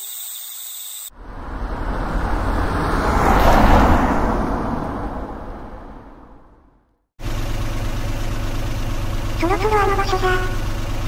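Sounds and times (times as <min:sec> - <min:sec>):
night insects chirping: 0:00.0 - 0:03.7
car driving by: 0:01.1 - 0:11.0.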